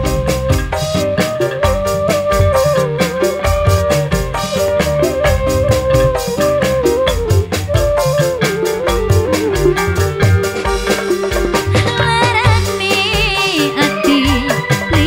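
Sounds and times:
drum kit beat: 0.0s - 15.0s
electric guitar: 0.0s - 15.0s
flute melody: 0.0s - 15.0s
keyboard: 0.0s - 15.0s.

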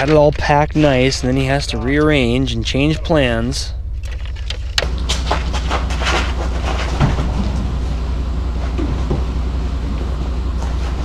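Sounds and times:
steady low rumble: 0.0s - 11.0s
knocks of shelter being loaded: 4.1s - 11.0s.

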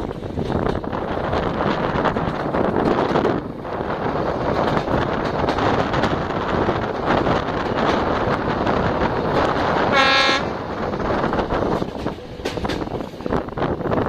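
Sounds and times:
passenger train running: 0.0s - 14.0s
wind rushing past microphone: 0.0s - 14.0s
train horn blast: 9.9s - 10.6s.

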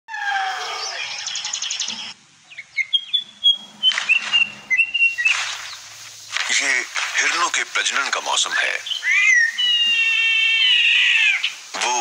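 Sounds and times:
bird trill: 0.1s - 6.0s, 8.4s - 11.7s
whistled bird notes: 0.1s - 6.0s, 8.4s - 12.0s
birds calling: 0.1s - 12.0s.

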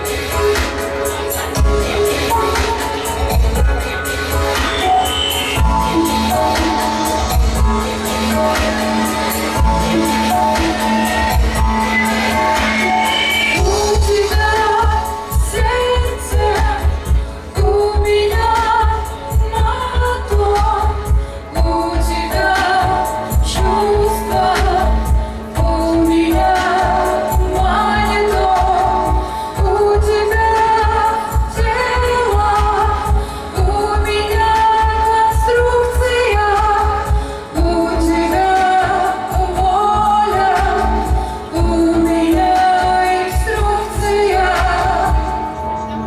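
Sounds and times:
backing music with bass beat: 0.0s - 46.0s
woman singing into microphone: 0.0s - 46.0s.

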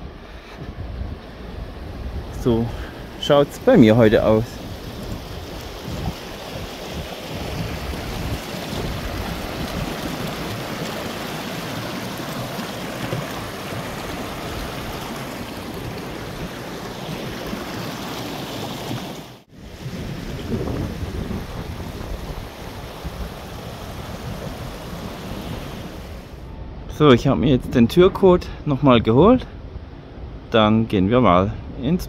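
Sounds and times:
wind on microphone: 0.0s - 18.0s, 19.5s - 30.5s
stream rushing over stones: 2.3s - 26.4s.

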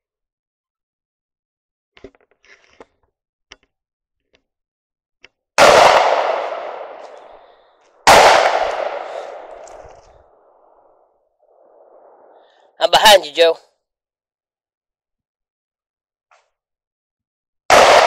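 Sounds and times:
shotgun shots echoing: 5.6s - 7.4s, 8.0s - 9.9s, 17.7s - 18.0s.

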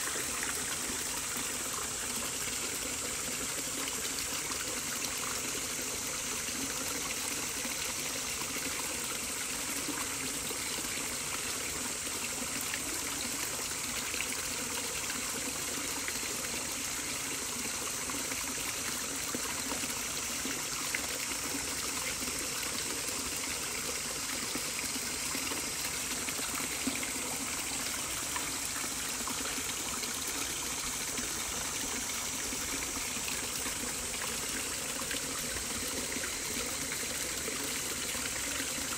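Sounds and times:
stream running water: 0.0s - 38.9s.

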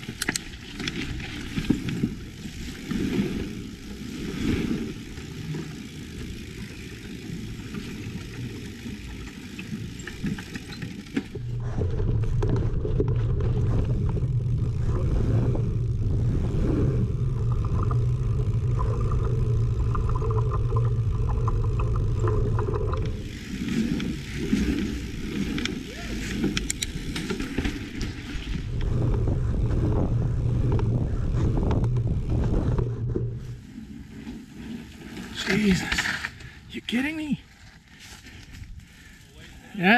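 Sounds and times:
bike rattling and clicking: 0.0s - 39.0s
bike tyres rolling on dirt: 0.0s - 39.9s
wind rumble on microphone: 7.4s - 34.9s.

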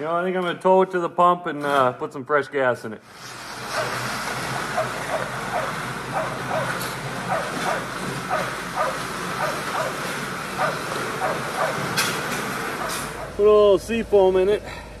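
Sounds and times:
pickup truck engine running: 3.5s - 15.0s.

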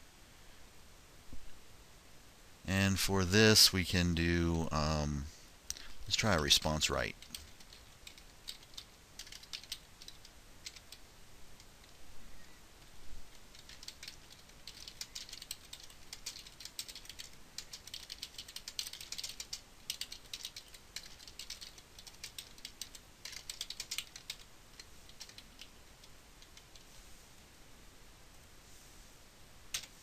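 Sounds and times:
keyboard typing: 6.1s - 11.0s, 13.3s - 26.8s, 29.7s - 29.9s.

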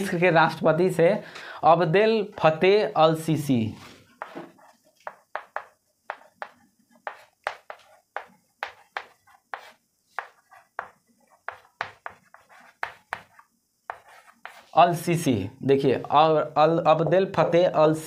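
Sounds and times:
chalk tapping and scratching on chalkboard: 4.2s - 14.8s.

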